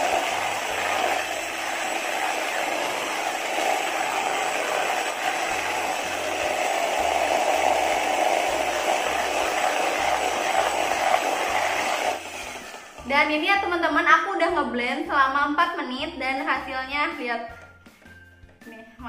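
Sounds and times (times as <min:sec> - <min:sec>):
electric hand mixer whipping: 0:00.0 - 0:13.8.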